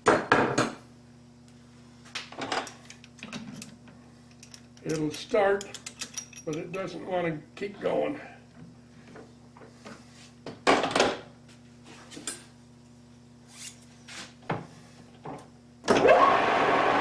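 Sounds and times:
lathe whine spinning up: 15.9 - 17.0.

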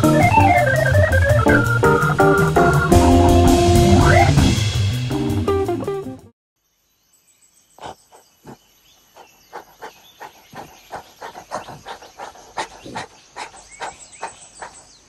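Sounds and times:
orangutan hoarse calls: 7.8 - 15.0.

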